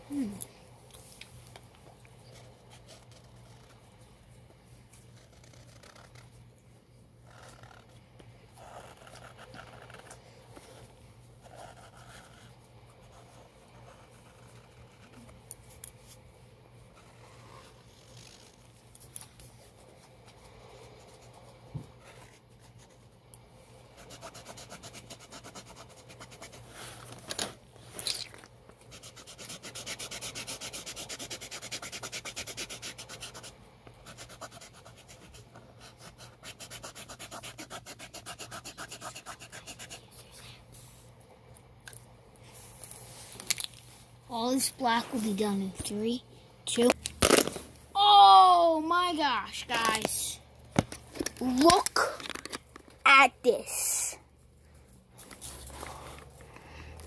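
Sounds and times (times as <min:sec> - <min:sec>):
marker scratching on canvas: 0:05.0 - 0:06.4, 0:07.2 - 0:07.9, 0:08.6 - 0:15.4, 0:23.9 - 0:26.8, 0:28.8 - 0:40.3.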